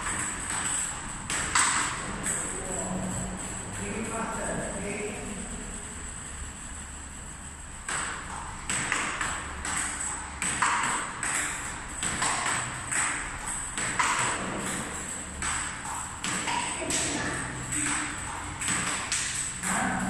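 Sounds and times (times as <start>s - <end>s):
ping pong ball clicking off paddles: 0.0s - 2.5s, 7.8s - 20.0s
ball bouncing on table: 8.7s - 20.0s.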